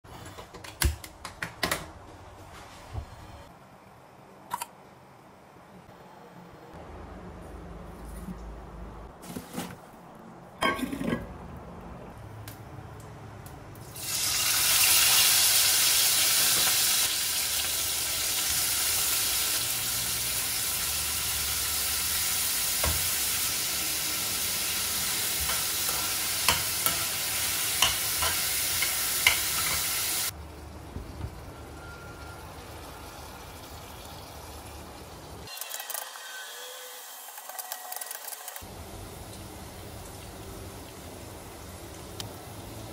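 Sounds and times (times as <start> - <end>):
food sizzling in hot pan: 13.9 - 30.4.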